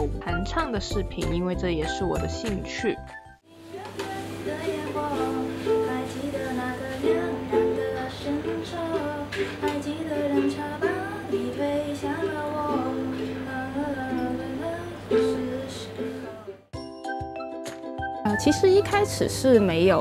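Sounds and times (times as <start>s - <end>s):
woman singing: 3.5s - 16.7s
ukulele chords: 3.8s - 19.2s.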